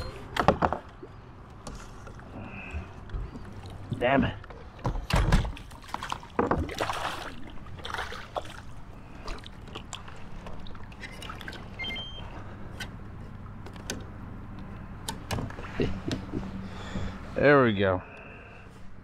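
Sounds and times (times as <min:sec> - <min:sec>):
water splashing against kayak: 0:02.6 - 0:12.7
clicks and knocks on hull: 0:04.4 - 0:06.9.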